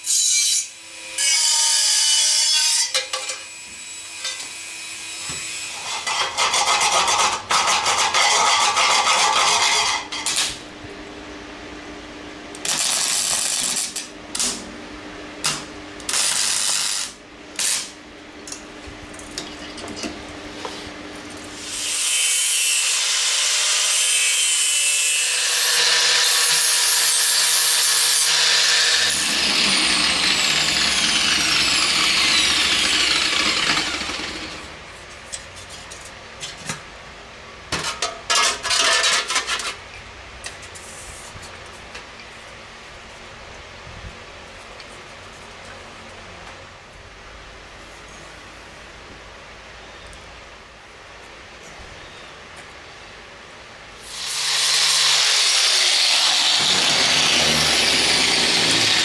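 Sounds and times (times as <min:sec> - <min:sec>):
angle grinder grinding steel: 0:05.7 - 0:10.5, 0:21.6 - 0:34.7, 0:54.0 - 0:59.0
welder arc crackling: 0:10.2 - 0:10.6, 0:12.6 - 0:14.6, 0:15.4 - 0:18.0.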